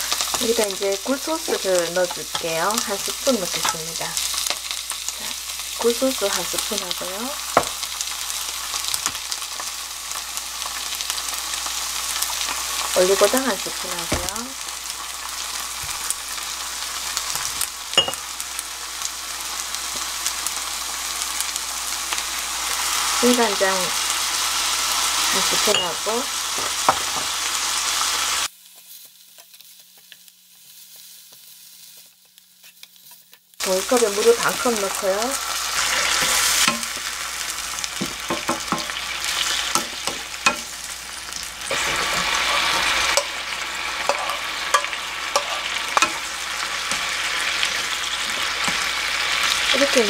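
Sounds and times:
meat sizzling in frying pan: 0.0 - 50.0
wooden spoon scraping: 34.4 - 49.6.

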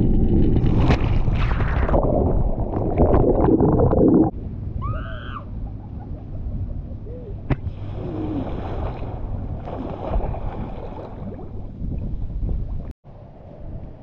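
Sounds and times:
water lapping: 6.2 - 12.7
churning water: 6.5 - 12.9.

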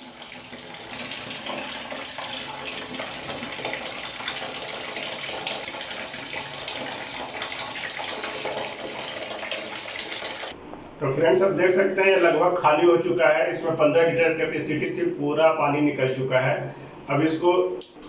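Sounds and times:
water pouring from pipe: 0.0 - 10.6.

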